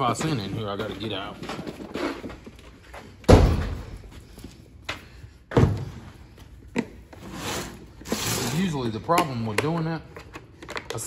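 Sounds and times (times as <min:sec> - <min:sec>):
heavy thumps: 0:03.2 - 0:04.2.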